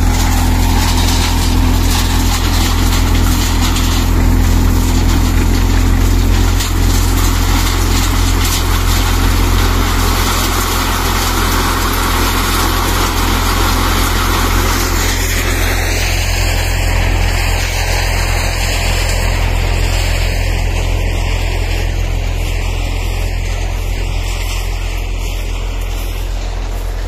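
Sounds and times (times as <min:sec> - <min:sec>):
thresher machine humming: 0:00.0 - 0:27.0.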